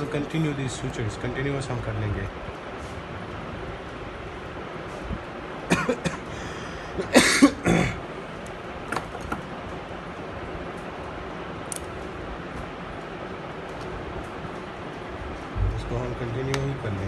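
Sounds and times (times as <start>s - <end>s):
steady background noise: 0.0s - 17.0s
person coughing: 5.7s - 6.3s, 7.0s - 8.0s.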